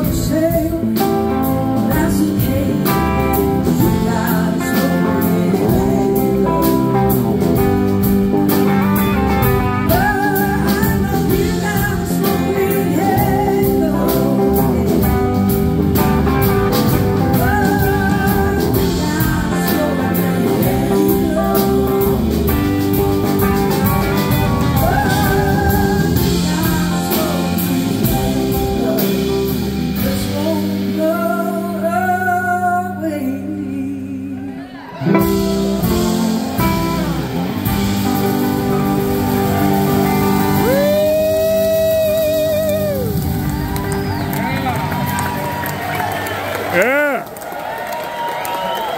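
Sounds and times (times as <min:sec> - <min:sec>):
drum kit: 0:00.0 - 0:31.9, 0:35.0 - 0:47.2
bass guitar: 0:00.0 - 0:47.3
electric slide guitar solo: 0:34.9 - 0:45.4.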